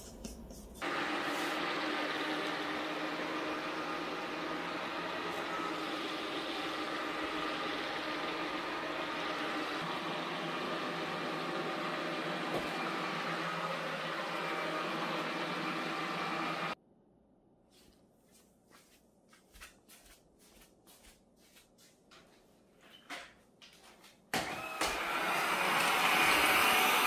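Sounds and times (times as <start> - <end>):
wet mop cleaner humming: 0.8 - 16.8, 24.4 - 27.0.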